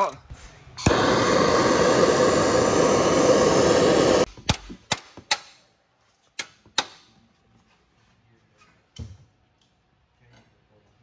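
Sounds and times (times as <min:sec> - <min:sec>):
gas torch flame hissing: 0:00.7 - 0:04.3.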